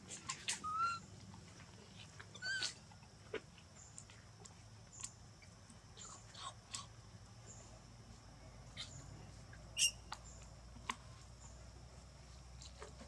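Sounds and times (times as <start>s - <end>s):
monkey squeaks: 0.3s - 1.0s, 2.3s - 2.8s, 9.8s - 10.2s.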